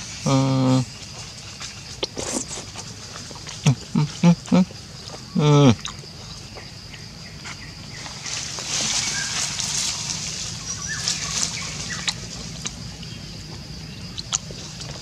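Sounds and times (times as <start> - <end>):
dry leaves rustling and crackling: 7.9 - 13.0.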